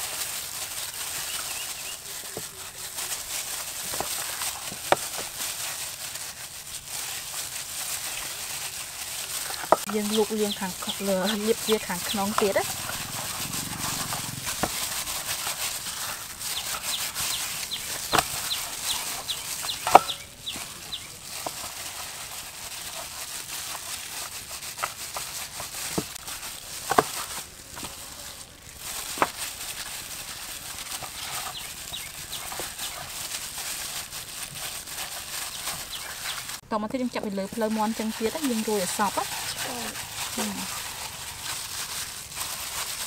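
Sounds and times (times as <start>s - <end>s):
hands working marinade into chicken: 0.0s - 43.0s
chickens peeping and clucking: 9.9s - 15.2s, 16.4s - 21.3s, 30.7s - 33.3s.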